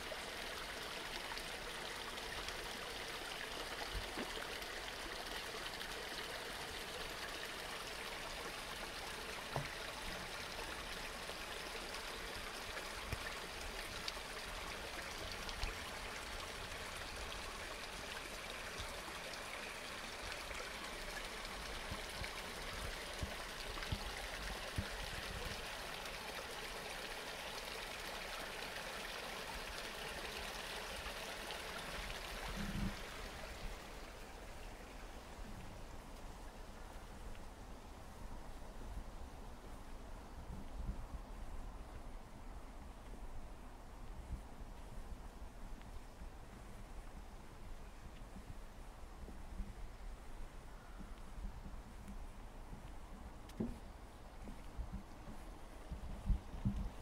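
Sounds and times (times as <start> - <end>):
stream rushing: 0.0 - 35.4.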